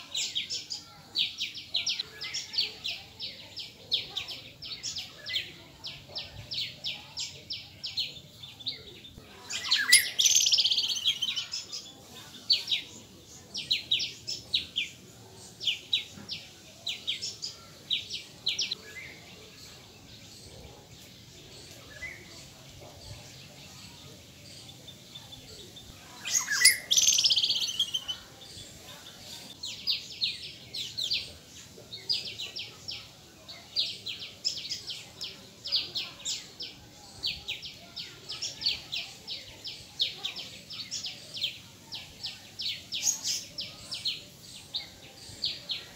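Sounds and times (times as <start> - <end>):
small birds chirping: 0.0 - 45.9
harsh bird calls: 26.2 - 28.5.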